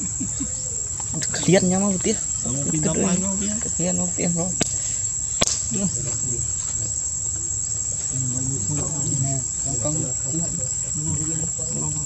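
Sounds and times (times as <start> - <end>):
high-pitched insect buzz: 0.0 - 12.0
low voice talking: 1.2 - 4.6, 8.0 - 12.0.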